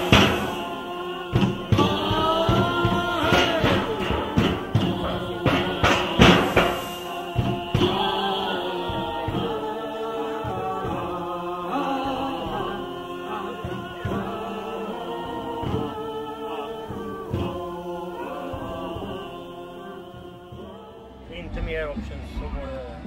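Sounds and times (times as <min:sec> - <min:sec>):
loud thumps: 0:00.0 - 0:16.2
voices chanting held notes: 0:00.0 - 0:23.0.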